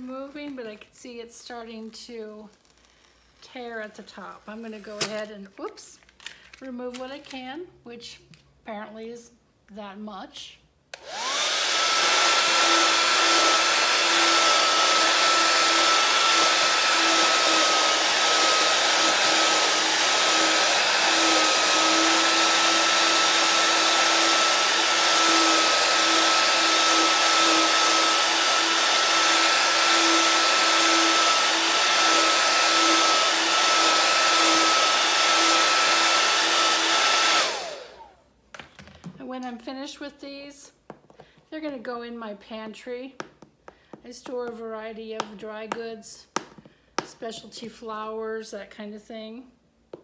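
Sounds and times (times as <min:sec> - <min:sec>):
hair dryer blowing: 0:10.9 - 0:38.2.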